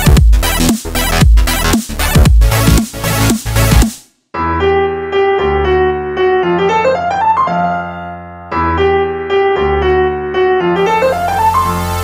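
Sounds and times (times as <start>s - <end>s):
keyboard melody over bass: 4.4s - 12.0s.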